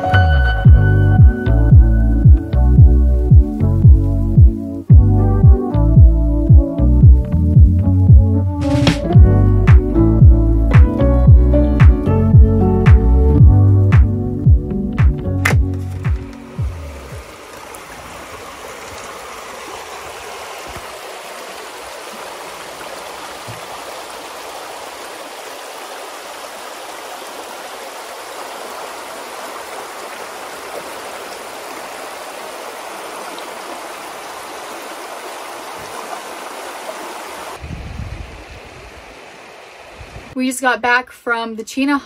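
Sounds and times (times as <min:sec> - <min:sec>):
low rumble: 0:13.3 - 0:17.3
river water rushing over gravel: 0:15.4 - 0:37.6.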